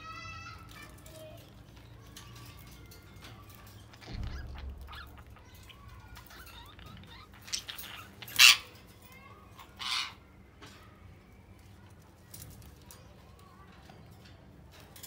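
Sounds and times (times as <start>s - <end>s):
harsh budgerigar squawks: 4.0s - 8.8s, 9.6s - 10.2s.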